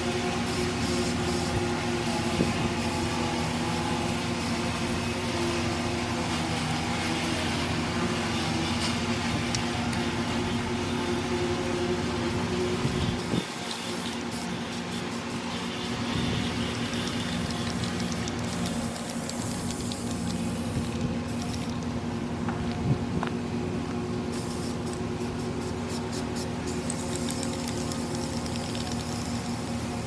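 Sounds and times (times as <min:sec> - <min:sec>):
spray paint can hissing: 0:00.4 - 0:06.7, 0:13.2 - 0:21.9, 0:24.3 - 0:30.0
steady low hum: 0:07.0 - 0:30.0.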